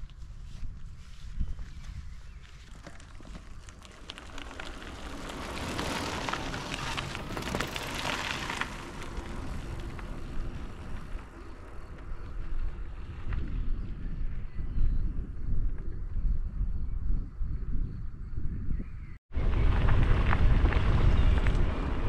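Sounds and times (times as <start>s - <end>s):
bicycle tyres on rough track: 0.0s - 16.7s, 19.3s - 22.0s
wind rumble on microphone: 0.0s - 22.0s.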